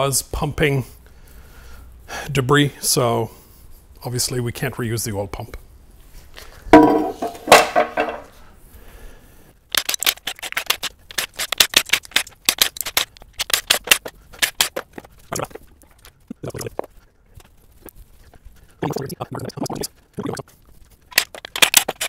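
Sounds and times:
dull metal knocks: 0:06.8 - 0:08.3.

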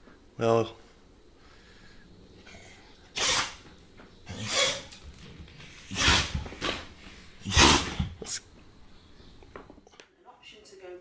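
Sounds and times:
dog sneezing: 0:03.2 - 0:03.6, 0:04.3 - 0:05.0, 0:05.8 - 0:06.5, 0:07.4 - 0:08.4.

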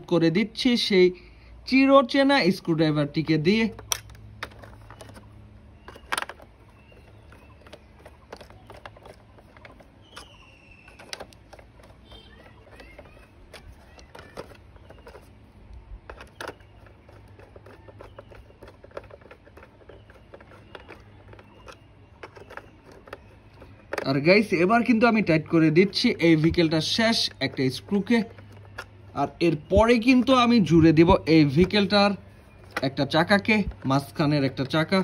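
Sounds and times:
screwdriver clicks and scrapes: 0:03.7 - 0:15.4, 0:16.0 - 0:25.0.

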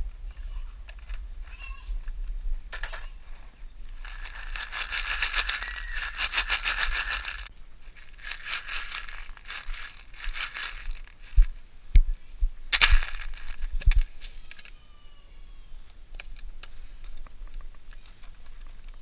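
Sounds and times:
plastic egg crinkling and rattling: 0:03.9 - 0:11.6, 0:12.7 - 0:14.8.

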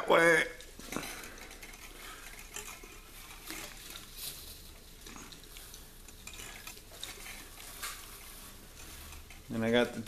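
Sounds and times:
thin wires scraping and ticking: 0:00.0 - 0:10.0.

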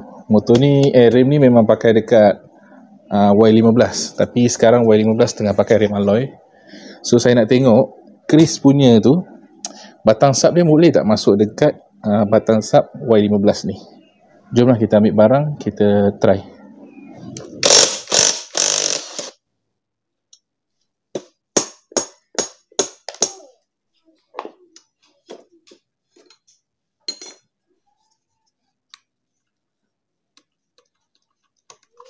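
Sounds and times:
sharp metal knocks: 0:21.2 - 0:23.4.

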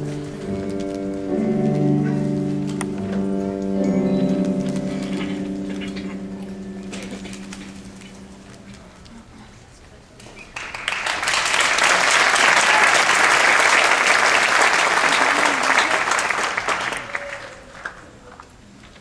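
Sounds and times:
audience applauding: 0:10.4 - 0:18.6.

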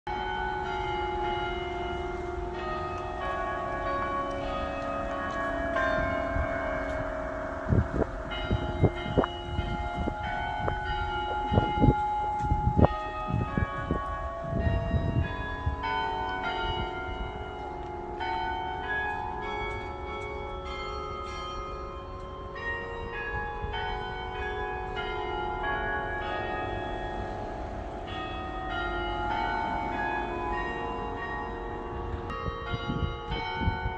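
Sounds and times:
church bells ringing: 0:00.1 - 0:33.9.

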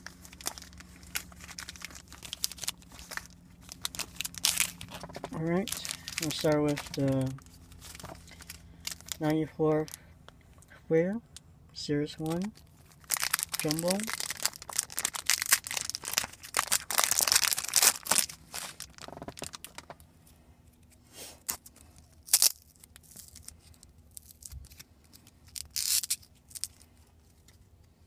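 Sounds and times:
cards rustling: 0:00.0 - 0:10.0, 0:12.2 - 0:20.0
wrapper tearing and crinkling: 0:00.0 - 0:10.0, 0:12.2 - 0:20.0, 0:21.4 - 0:27.0.

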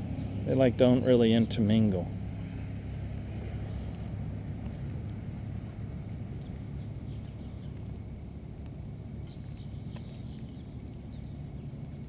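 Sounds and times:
faint bird chirps: 0:08.5 - 0:11.8.

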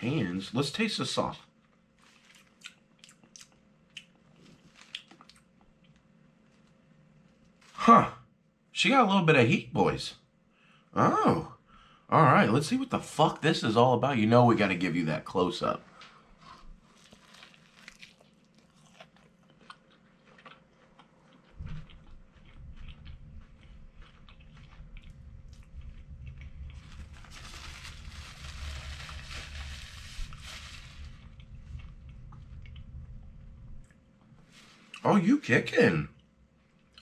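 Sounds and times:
crunching fried chicken: 0:01.8 - 0:07.8, 0:16.8 - 0:33.0
wet chewing: 0:02.0 - 0:07.5, 0:16.7 - 0:27.2, 0:36.2 - 0:37.0.

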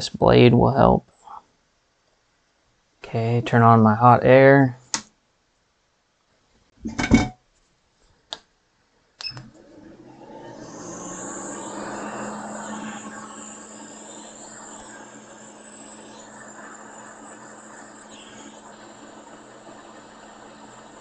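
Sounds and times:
blower fan hissing: 0:09.4 - 0:21.0.

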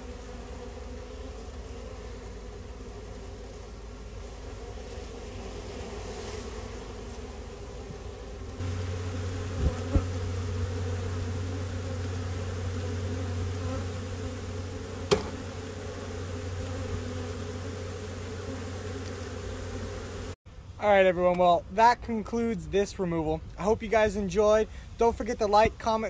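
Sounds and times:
bees buzzing: 0:00.0 - 0:20.4
sharp knocks: 0:15.1 - 0:15.5.

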